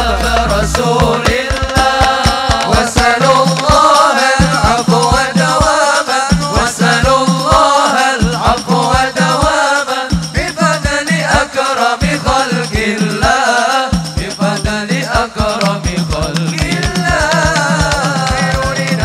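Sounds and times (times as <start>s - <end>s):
low drumbeat: 0.0s - 7.6s, 14.0s - 19.0s
devotional sung chant: 0.0s - 19.0s.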